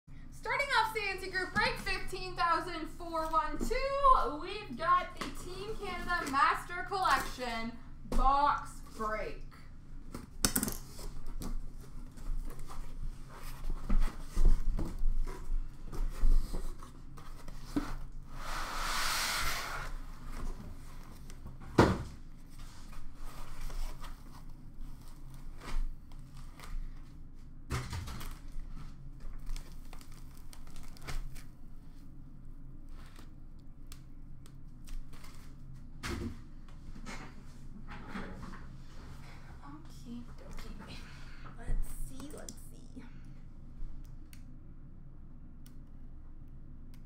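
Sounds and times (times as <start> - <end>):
scrape: 17.6 - 20.4.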